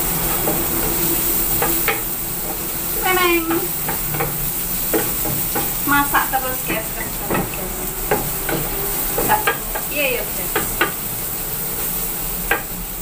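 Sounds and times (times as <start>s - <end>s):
wooden spatula scraping a pan: 0.0s - 12.7s
food sizzling in hot oil: 0.0s - 13.0s.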